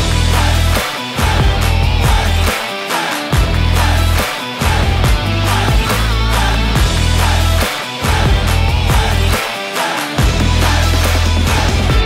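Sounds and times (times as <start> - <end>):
rock music with bass and guitar: 0.0 - 12.0.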